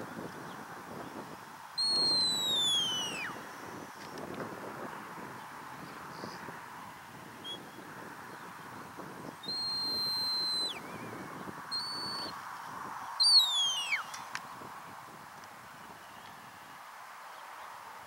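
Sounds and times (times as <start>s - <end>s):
faint outdoor hiss: 0.0s - 18.0s
person whistling commands: 1.8s - 3.3s, 9.5s - 10.8s, 13.2s - 14.1s.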